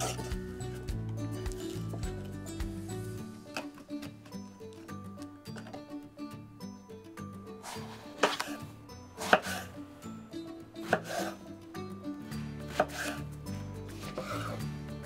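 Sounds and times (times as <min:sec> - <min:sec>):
knife cutting through eggplant: 0:00.0 - 0:00.6, 0:01.5 - 0:02.1, 0:07.6 - 0:09.8, 0:10.8 - 0:11.4, 0:12.6 - 0:14.7.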